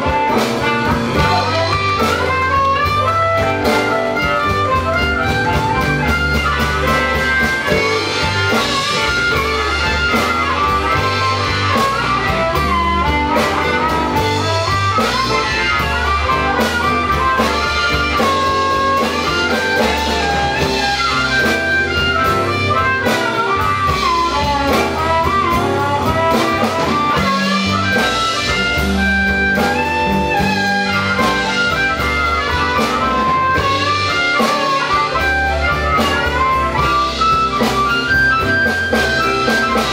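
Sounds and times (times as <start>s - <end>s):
bending melodic lead line: 0.0s - 39.9s
live blues band playing: 0.0s - 39.9s.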